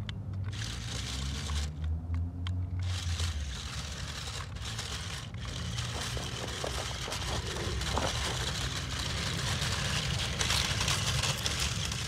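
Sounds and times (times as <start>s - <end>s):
small clicks: 0.0s - 12.0s
tyres crunching on stones: 3.2s - 12.0s.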